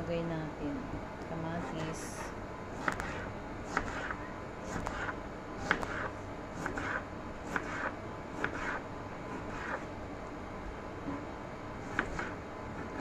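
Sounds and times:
knife slicing a tomato: 0:02.8 - 0:09.9, 0:11.8 - 0:13.0.

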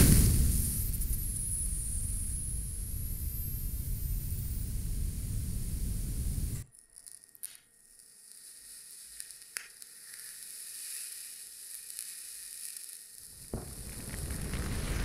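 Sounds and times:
loud rush of flame: 0:00.0 - 0:06.6, 0:13.3 - 0:15.0
resistor sizzling with high hiss: 0:00.0 - 0:15.0
sharp crackles: 0:00.0 - 0:15.0.

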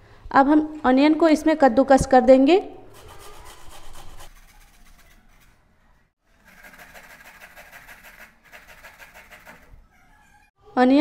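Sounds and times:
onion scraping on grater: 0:02.9 - 0:05.6, 0:06.4 - 0:09.7.

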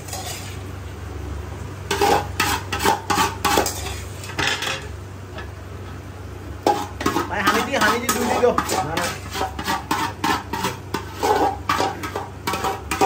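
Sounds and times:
steady low hum: 0:00.0 - 0:13.0
metal spoon clinking on pots: 0:06.7 - 0:13.0.

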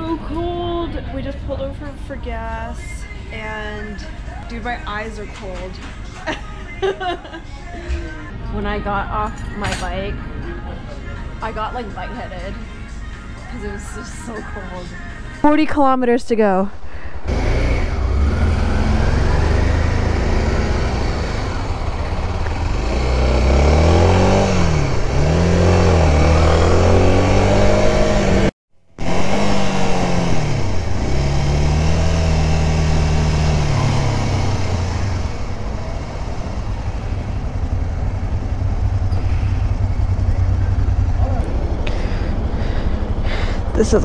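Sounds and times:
motorcycle engine running: 0:17.0 - 0:44.0.

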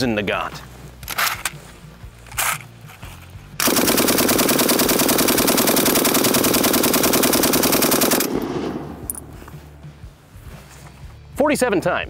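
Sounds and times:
machine gun full-auto burst: 0:03.6 - 0:08.8.

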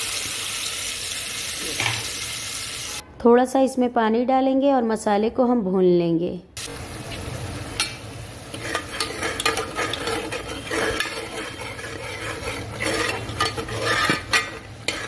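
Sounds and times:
paste sizzling and bubbling: 0:08.1 - 0:15.0
spoon scraping pot: 0:08.5 - 0:15.0.

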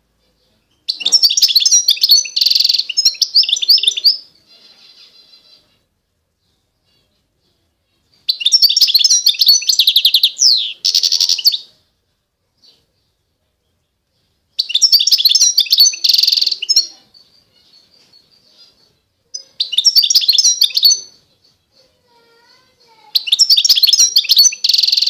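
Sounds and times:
finch twittering: 0:19.4 - 0:21.2, 0:23.1 - 0:25.0.

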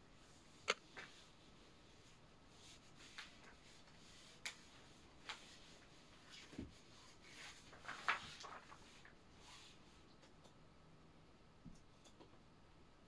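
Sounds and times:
faint clicks and knocks: 0:11.6 - 0:12.5.

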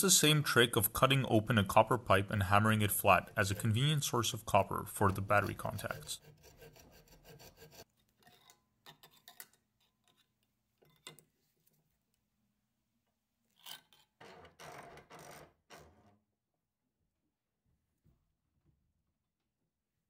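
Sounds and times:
hacksaw cutting copper pipe: 0:02.8 - 0:09.5
long rasping scrape: 0:05.0 - 0:07.9
tools scraping and clicking: 0:05.0 - 0:11.3, 0:13.5 - 0:15.3.

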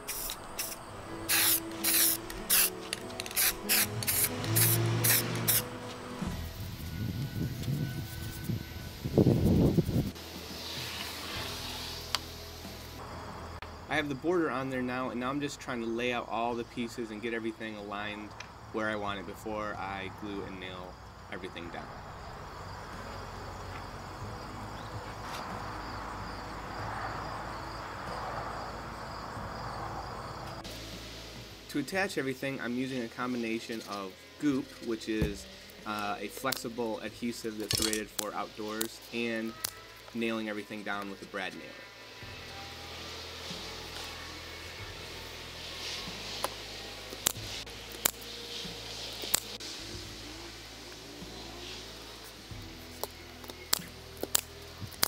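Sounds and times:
spray can hissing bursts: 0:00.0 - 0:05.8, 0:08.0 - 0:12.9, 0:42.8 - 0:52.6
crickets chirping: 0:00.0 - 0:55.0.

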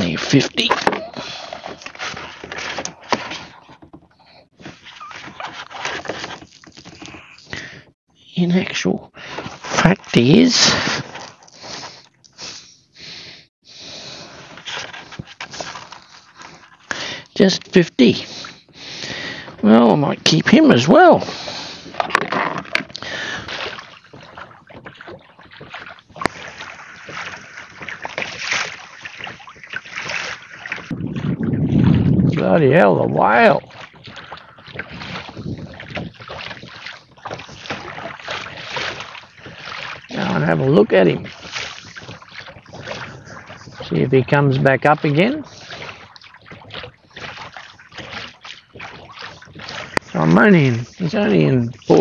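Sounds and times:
fish rustling and scraping: 0:00.0 - 0:08.0, 0:09.2 - 0:12.5, 0:14.0 - 0:17.4, 0:21.2 - 0:32.0, 0:33.6 - 0:52.0
water sloshing and splashing: 0:00.0 - 0:52.0
wind on microphone: 0:30.7 - 0:38.7.

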